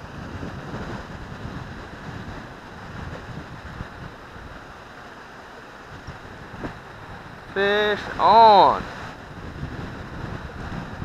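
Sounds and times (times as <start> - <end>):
water rushing from dam gates: 0.0 - 11.0
wind buffeting microphone: 0.0 - 11.0.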